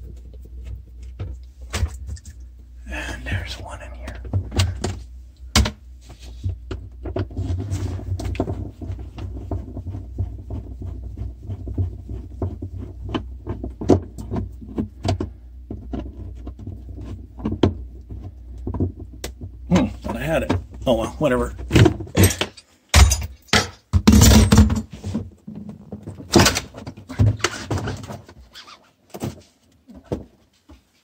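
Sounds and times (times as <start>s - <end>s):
steady low hum: 0.0s - 23.5s.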